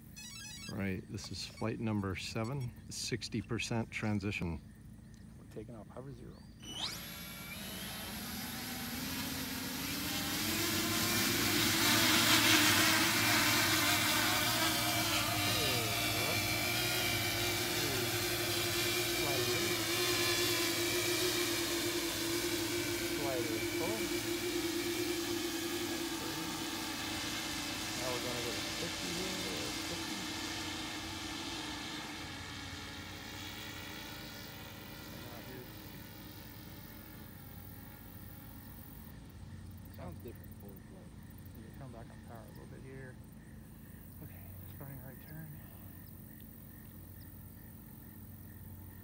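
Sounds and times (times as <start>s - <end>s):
propeller wash rushing: 0.0s - 4.6s, 5.5s - 39.1s
electric motor hum rising: 0.0s - 4.8s, 6.2s - 43.2s.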